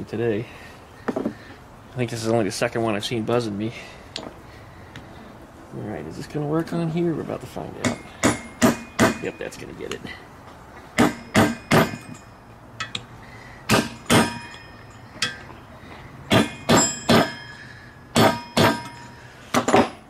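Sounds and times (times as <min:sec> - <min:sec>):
hammer striking metal driver: 0:07.8 - 0:09.4, 0:11.0 - 0:13.1, 0:13.7 - 0:15.5, 0:16.3 - 0:20.0.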